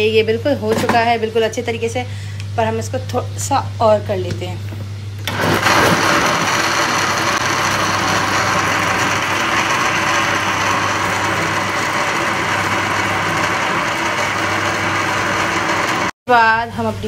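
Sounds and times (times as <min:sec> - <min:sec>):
electric blender whirring: 0:05.2 - 0:16.2.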